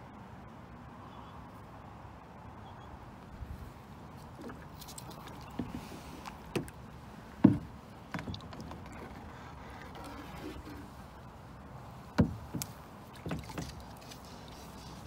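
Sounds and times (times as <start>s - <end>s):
hollow knocks on plastic hull: 7.4s - 9.0s, 12.2s - 13.8s.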